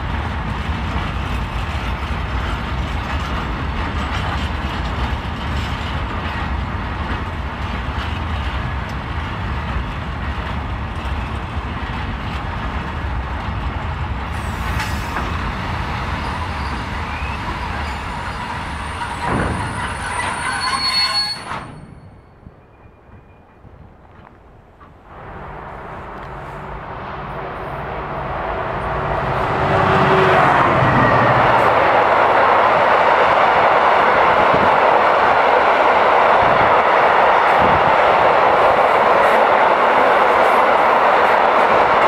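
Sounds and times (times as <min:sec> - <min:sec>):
train wheels rumbling on rail: 0:00.0 - 0:42.0
wheel and brake squeal: 0:16.2 - 0:23.5.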